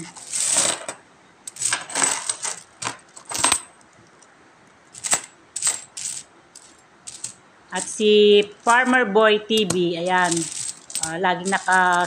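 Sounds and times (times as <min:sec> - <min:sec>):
coins clinking: 0:00.0 - 0:03.8, 0:05.0 - 0:12.0.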